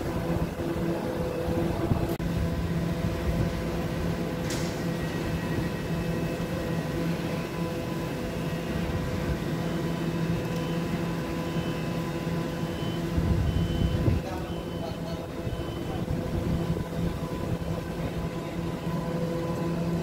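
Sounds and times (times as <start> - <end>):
electric train humming: 0.0 - 20.0.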